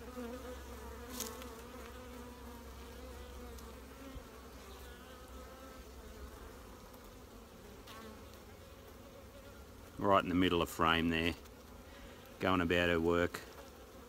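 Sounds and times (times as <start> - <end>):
bees buzzing: 0.0 - 14.0.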